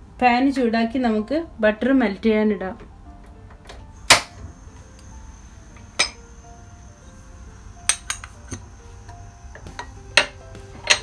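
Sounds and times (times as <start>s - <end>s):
faint background music: 0.0s - 11.0s
ceramic dishes and utensils clinking: 6.0s - 6.2s, 7.9s - 8.6s, 9.6s - 11.0s.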